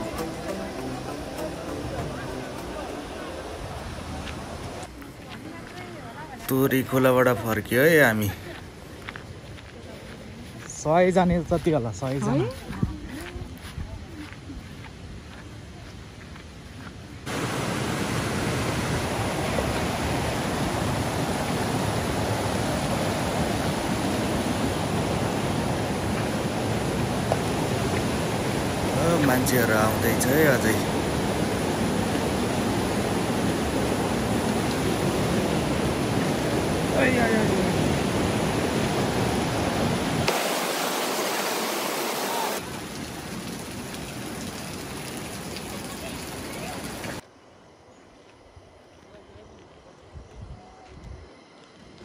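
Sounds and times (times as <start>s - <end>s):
stream rushing over rocks: 0.0s - 5.0s, 17.2s - 47.2s.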